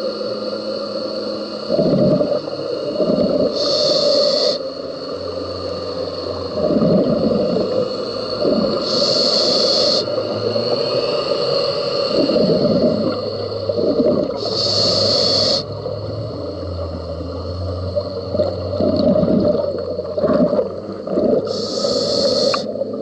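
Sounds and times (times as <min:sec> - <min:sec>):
regulator inhalation hiss: 0:00.0 - 0:15.8, 0:21.4 - 0:22.9
exhaled air bubbling: 0:01.6 - 0:04.7, 0:06.0 - 0:23.0.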